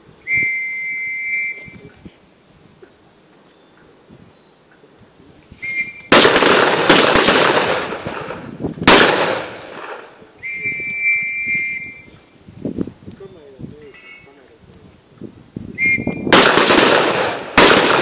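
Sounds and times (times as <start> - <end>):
whistle blast: 0.2 - 1.9, 5.6 - 6.2, 10.4 - 12.2, 15.7 - 16.4
rifle shots echoing: 6.1 - 10.2, 16.3 - 18.0.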